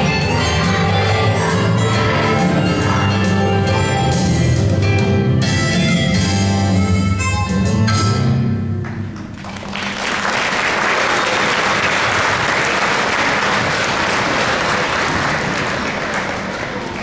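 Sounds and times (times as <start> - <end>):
live song notes: 0.0 - 9.3
audience applauding: 9.0 - 17.0.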